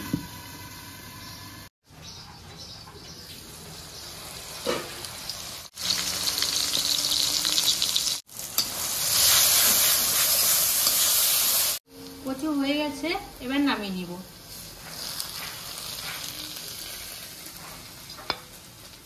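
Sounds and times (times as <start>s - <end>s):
curry sizzling in a pan: 3.4s - 11.8s, 13.8s - 19.0s.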